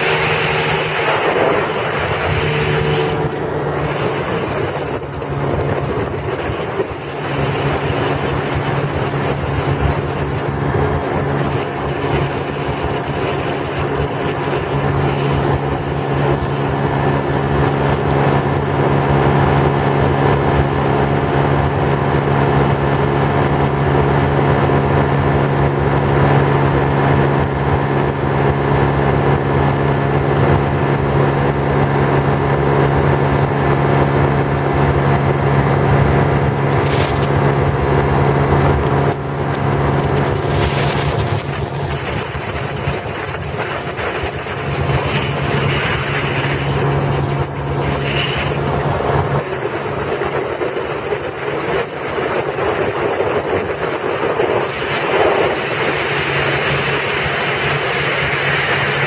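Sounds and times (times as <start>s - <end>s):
aircraft engine droning: 0.0s - 59.0s
wind rushing over microphone: 0.0s - 59.0s.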